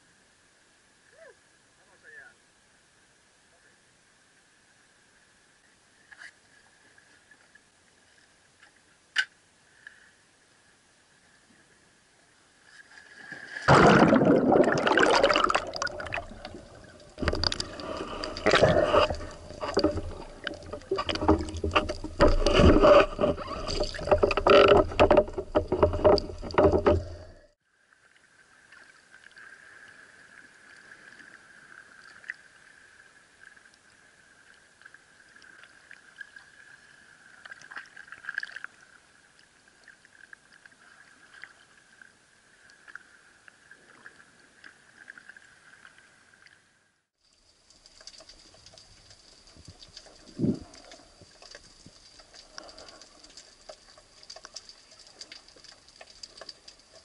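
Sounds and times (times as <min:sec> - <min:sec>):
small clicks underwater: 0:12.7 - 0:27.5, 0:37.3 - 0:46.6, 0:47.3 - 0:57.0
water splashing: 0:12.7 - 0:27.6, 0:47.3 - 0:57.0
muffled underwater hush: 0:13.7 - 0:27.6.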